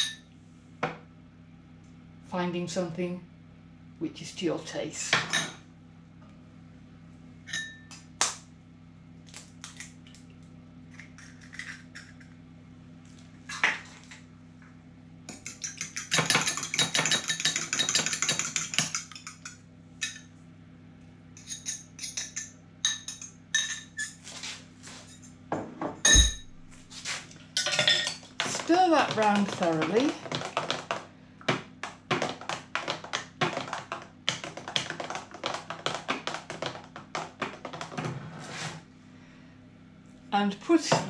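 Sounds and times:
fork whisking eggs in a bowl: 0:15.3 - 0:20.2
fork tapping bowl: 0:15.3 - 0:20.3.

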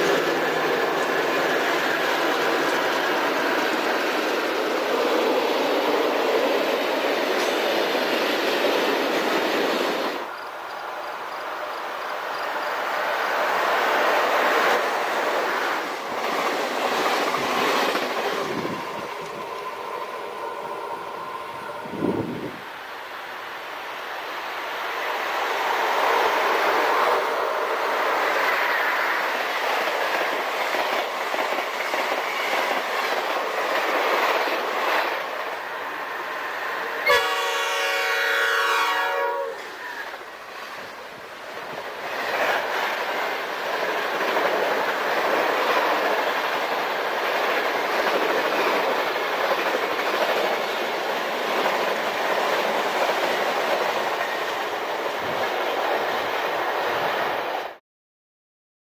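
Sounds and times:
train wheels and rail clatter: 0:00.0 - 0:57.8
locomotive horn: 0:37.0 - 0:39.8.

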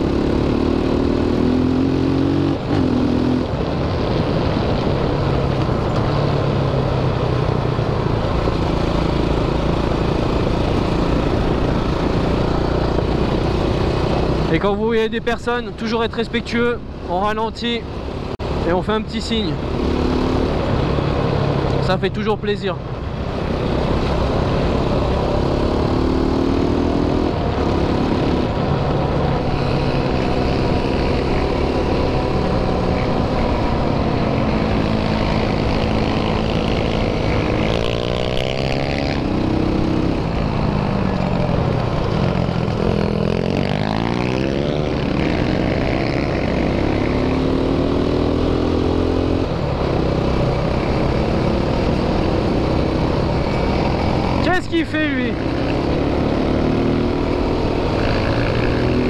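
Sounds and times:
quad engine revving: 0:00.0 - 0:03.4, 0:23.5 - 0:28.5, 0:29.4 - 0:40.3, 0:42.6 - 0:59.0
wind noise: 0:00.7 - 0:18.7
pit bike engine: 0:23.2 - 0:59.0.

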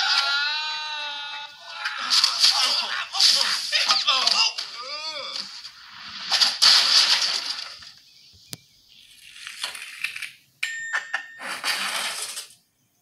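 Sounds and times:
toy wagon crashing and skidding: 0:01.7 - 0:08.0, 0:09.2 - 0:10.4, 0:11.1 - 0:12.6.

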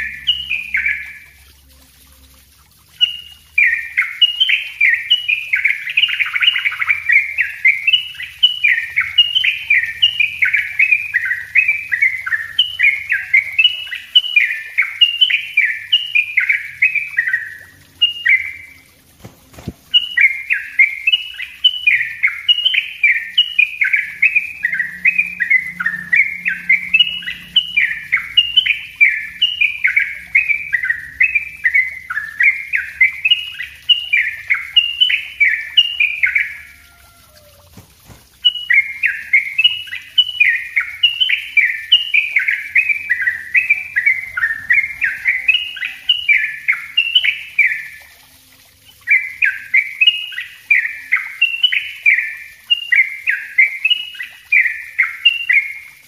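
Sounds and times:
bird singing rapid chirps: 0:00.0 - 0:01.4, 0:02.9 - 0:48.1, 0:48.8 - 0:56.0.

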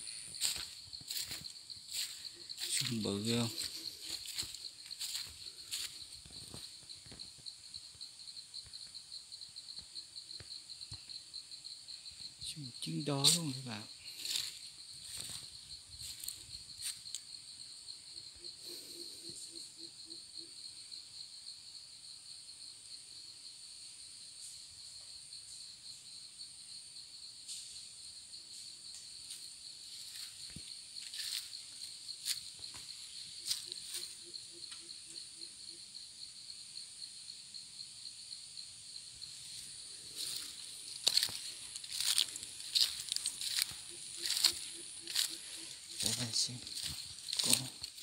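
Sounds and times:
shrill insect chorus: 0:00.0 - 0:48.0
footsteps on dry leaves: 0:00.1 - 0:06.6, 0:13.2 - 0:17.0, 0:31.0 - 0:31.6, 0:39.4 - 0:48.0.

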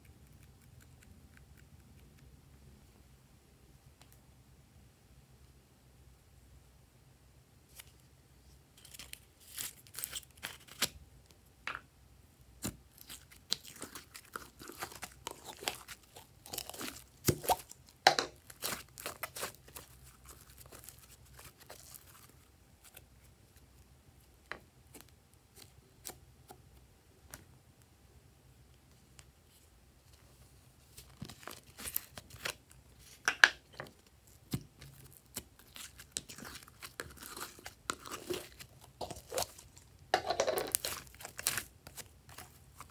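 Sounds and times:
slime crackling and popping: 0:12.6 - 0:22.2.

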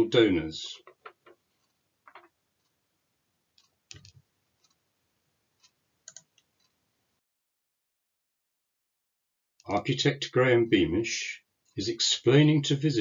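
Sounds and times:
faint clicks: 0:03.6 - 0:04.8, 0:05.6 - 0:06.8.

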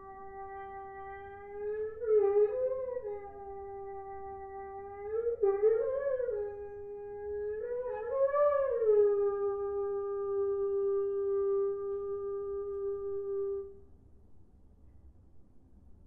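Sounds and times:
french horn holding a note: 0:00.0 - 0:13.8.

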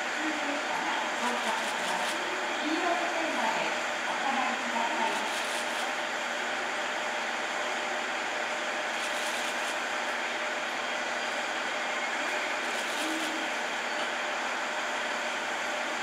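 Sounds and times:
electric train equipment humming: 0:00.0 - 0:16.0
faint voice: 0:12.1 - 0:13.7.

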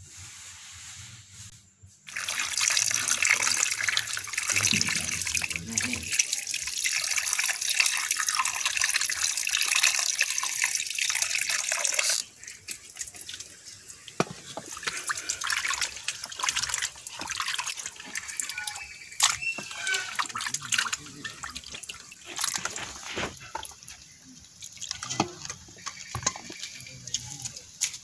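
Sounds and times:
hose water running into metal bowl: 0:02.1 - 0:28.0
splashing and wet handling: 0:09.8 - 0:28.0.

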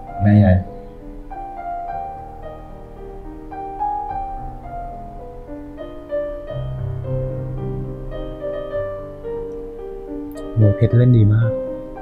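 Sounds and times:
deep bass note: 0:00.0 - 0:00.7, 0:10.4 - 0:11.6
slow gentle piano music: 0:00.0 - 0:12.0.

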